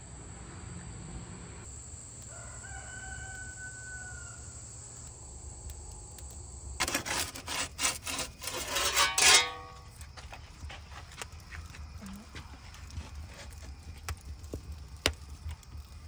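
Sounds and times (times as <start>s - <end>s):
rooster crowing: 2.3s - 4.8s.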